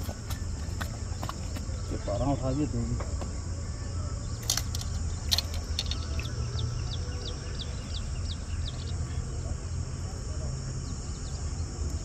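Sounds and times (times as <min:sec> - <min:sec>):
insect-like hiss: 0:00.0 - 0:12.0
bird chirping falling notes: 0:04.1 - 0:09.2.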